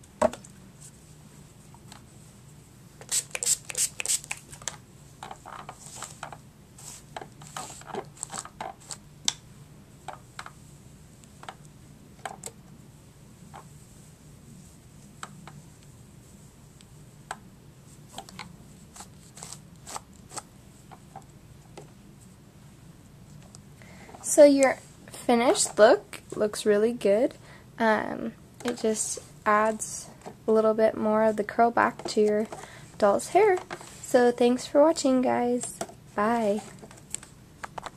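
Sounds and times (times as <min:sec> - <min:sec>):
rustling of doll hair: 0:00.7 - 0:09.0, 0:17.8 - 0:20.9, 0:28.6 - 0:37.9.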